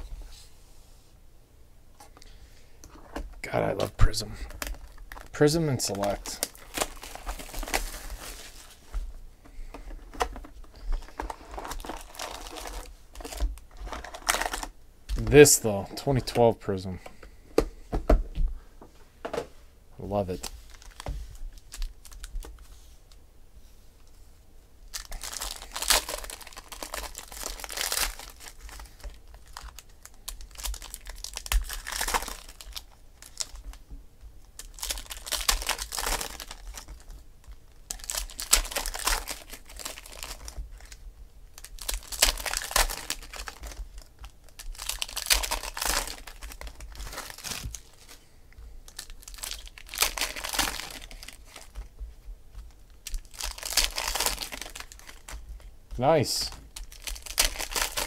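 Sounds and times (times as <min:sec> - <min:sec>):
foil wrappers crinkling and tearing: 0:03.6 - 0:08.8, 0:10.2 - 0:16.4, 0:20.0 - 0:22.6, 0:24.9 - 0:33.8, 0:34.5 - 0:48.2, 0:48.8 - 0:58.0.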